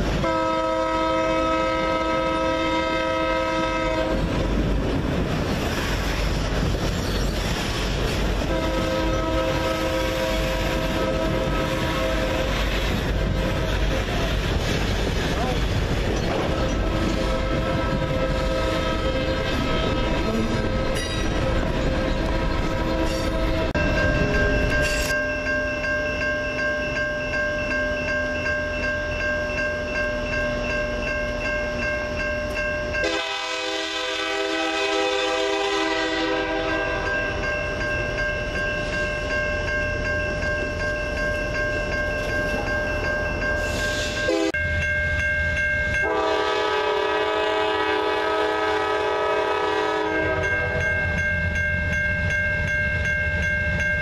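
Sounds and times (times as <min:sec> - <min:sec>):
train wheels on rails: 0:00.0 - 0:54.0
locomotive air horn: 0:00.2 - 0:04.3, 0:08.4 - 0:12.8, 0:16.4 - 0:23.8, 0:33.0 - 0:37.1, 0:43.7 - 0:44.6, 0:46.0 - 0:50.8.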